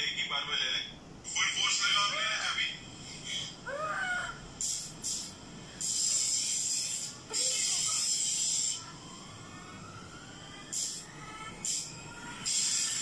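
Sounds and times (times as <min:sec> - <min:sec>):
sharp hissing: 0:04.6 - 0:08.9, 0:10.7 - 0:13.0.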